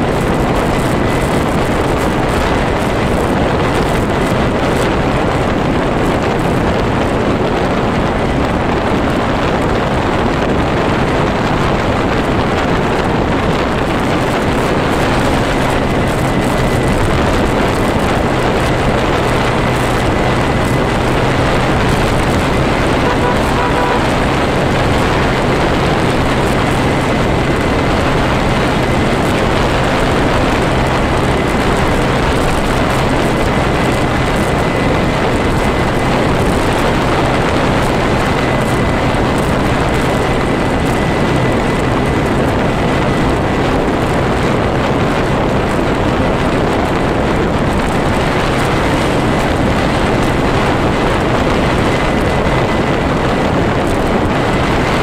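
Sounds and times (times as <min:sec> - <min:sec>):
constant low hum: 0:00.0 - 0:55.0
wind and road noise: 0:00.0 - 0:55.0.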